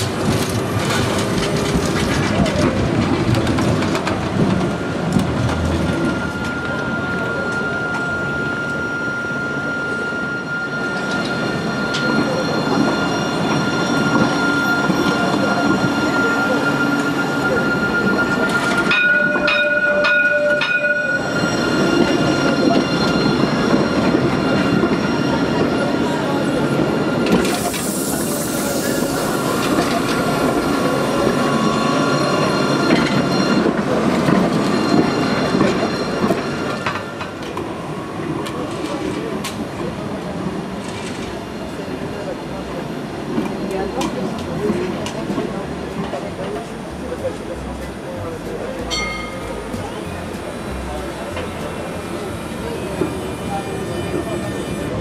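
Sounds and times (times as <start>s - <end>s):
tram running gear rumbling: 0.0s - 7.4s
tram rumbling on rails: 0.0s - 55.0s.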